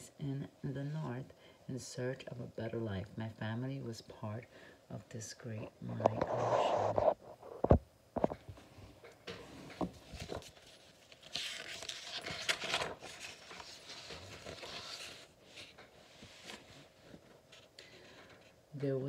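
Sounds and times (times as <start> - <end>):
page turning rustle: 6.0 - 8.4, 9.3 - 18.6.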